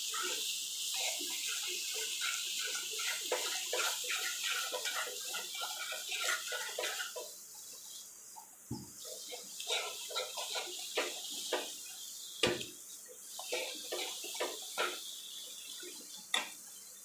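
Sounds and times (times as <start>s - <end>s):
spatula scraping a pan: 0.0s - 8.0s, 9.0s - 16.9s
paste sizzling in a pan: 0.0s - 17.0s.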